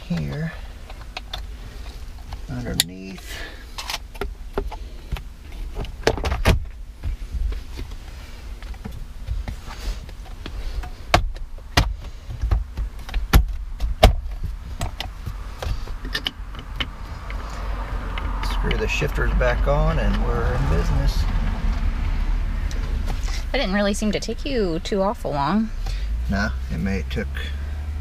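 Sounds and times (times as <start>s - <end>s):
low rumble: 14.5s - 26.8s.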